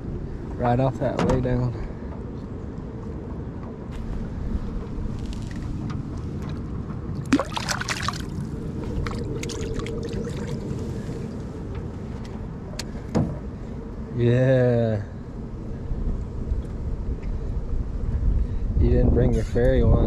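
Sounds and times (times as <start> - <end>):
steady low rumble: 0.0 - 20.0
fish splashing into water: 7.2 - 10.6.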